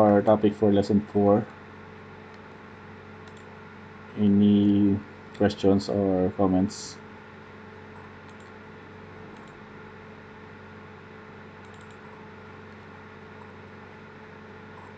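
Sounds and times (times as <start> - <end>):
room and microphone hum: 0.0 - 14.9
computer mouse clicks: 3.2 - 3.5, 8.0 - 8.6, 9.3 - 9.6, 11.6 - 12.8, 13.4 - 13.6.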